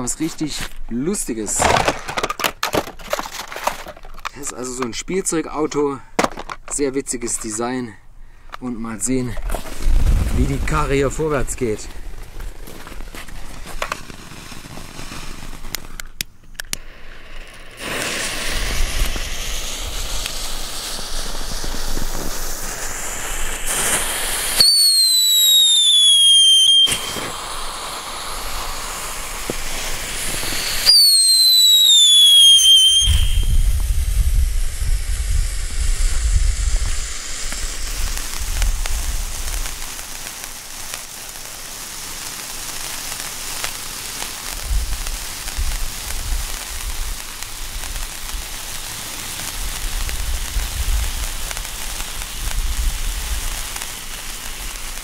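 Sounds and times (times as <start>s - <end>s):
firework hissing sparks: 9.0s - 55.0s
low rumbling noise: 9.7s - 12.6s
firework falling whistle: 16.7s - 41.7s.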